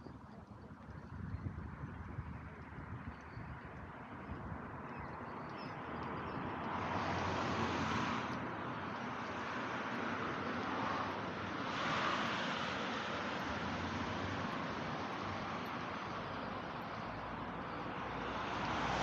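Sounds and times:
cars driving past: 5.4s - 19.0s.

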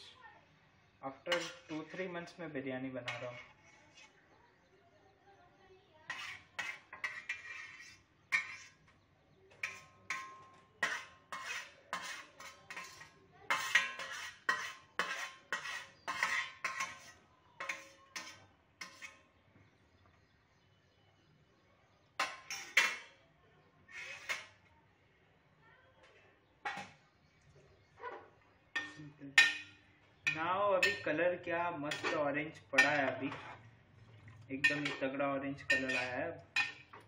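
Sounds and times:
metal spoon clinking on lid: 9.5s - 17.0s, 28.8s - 31.2s, 31.9s - 32.2s, 32.8s - 33.6s, 34.6s - 37.0s.

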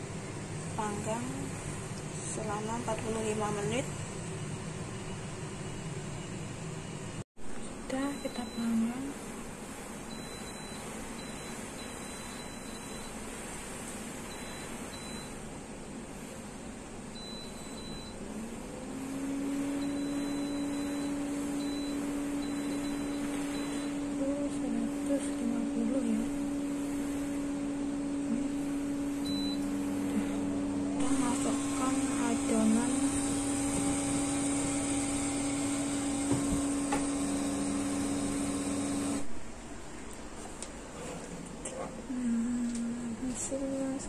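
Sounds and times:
oven fan motor humming: 0.0s - 7.2s, 7.9s - 44.0s
touch-panel beep: 8.0s - 9.0s, 10.1s - 13.2s, 17.2s - 18.2s, 19.8s - 24.6s, 29.2s - 29.8s.

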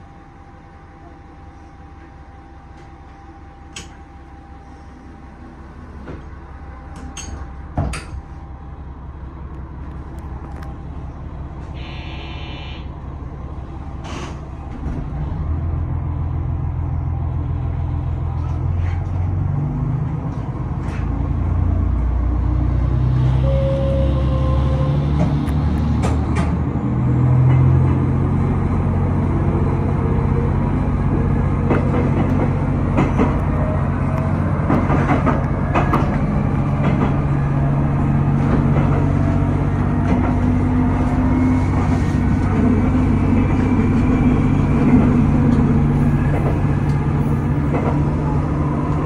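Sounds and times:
diesel railcar engines: 0.0s - 49.0s
brief electronic tone: 11.8s - 12.9s.

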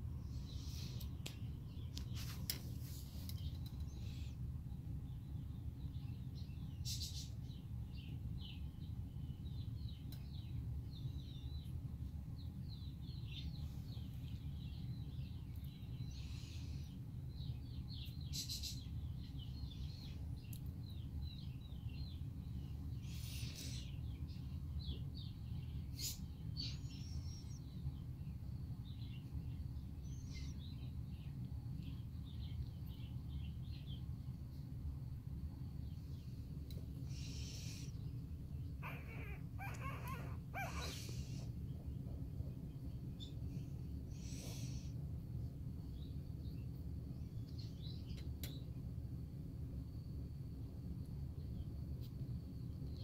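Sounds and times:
steady low hum: 0.0s - 53.0s
puppies squeaking: 38.8s - 41.4s.

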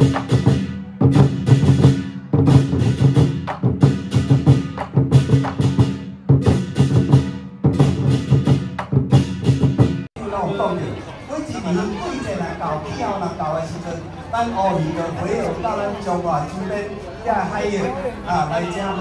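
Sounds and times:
barrel drums beaten with sticks: 0.0s - 10.1s.

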